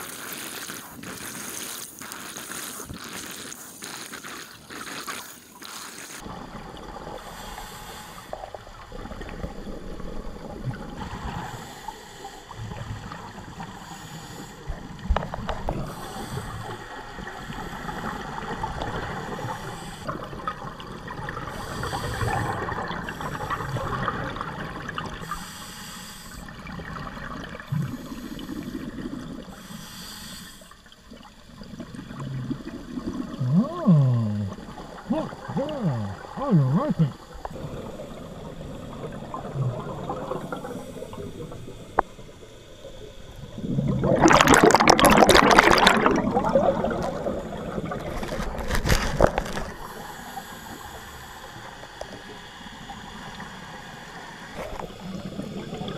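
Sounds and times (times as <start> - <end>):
regulator inhale hiss: 7.1 - 8.6, 11.2 - 15.1, 15.7 - 20.1, 21.5 - 23.8, 25.2 - 26.6, 27.7 - 31.0, 40.4 - 43.6, 49.7 - 55.4
exhaust bubbles rumbling: 31.7 - 42.4, 43.0 - 49.8
loud gurgling bubbling: 32.0 - 41.4, 43.5 - 49.8.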